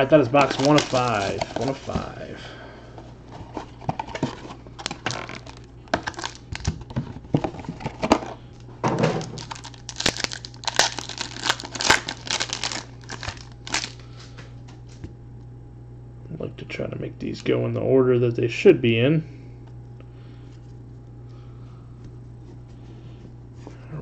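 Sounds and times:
foil wrapper crinkling and tearing: 0.0 - 2.2, 4.8 - 6.9, 9.0 - 14.2.

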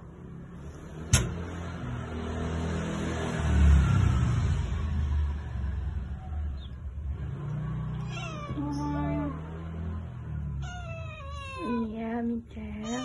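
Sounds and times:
kitten meowing: 8.0 - 9.3, 10.6 - 12.0, 12.8 - 13.0.

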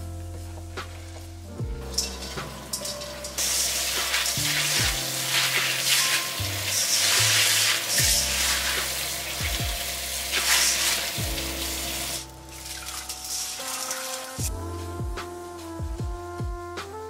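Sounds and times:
wet beans rattling in metal sieve: 1.9 - 9.5, 10.3 - 14.4.

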